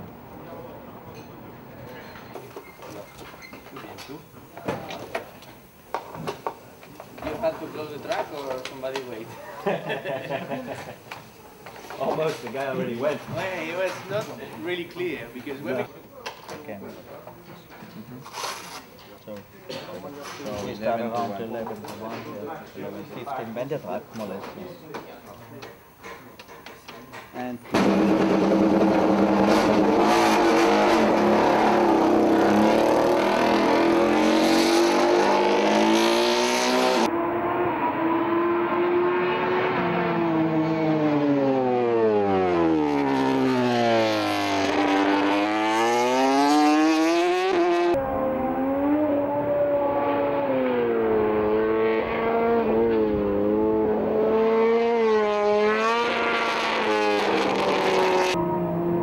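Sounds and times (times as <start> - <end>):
motorcycle engine revving: 27.8 - 59.0.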